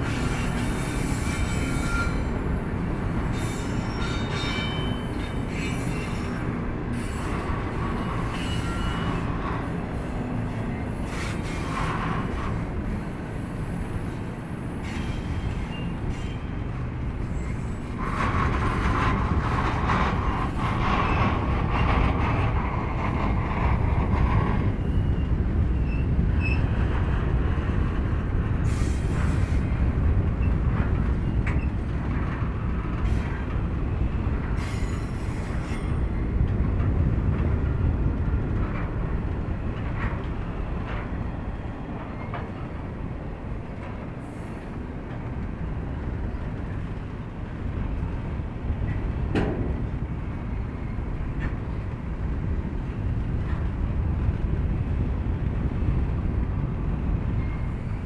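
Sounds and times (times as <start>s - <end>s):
train wheels rumbling on rail: 0.0s - 58.0s
high wheel squeal: 0.1s - 2.4s, 3.3s - 9.6s, 14.8s - 16.6s, 17.2s - 18.2s, 24.7s - 26.8s, 34.6s - 36.1s.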